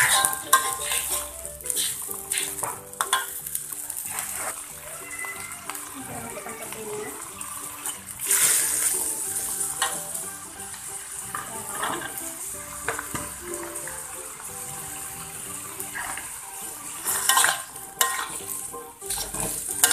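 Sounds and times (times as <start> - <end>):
metal spatula scraping in wok: 0.0 - 4.8, 7.7 - 13.4, 14.6 - 19.9
oil sizzling: 0.0 - 19.9.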